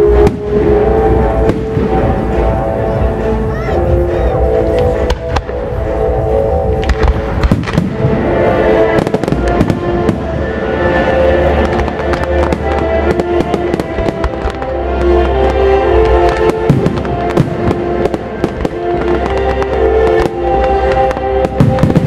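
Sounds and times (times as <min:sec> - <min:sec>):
loud music with deep bass: 0:00.0 - 0:22.0.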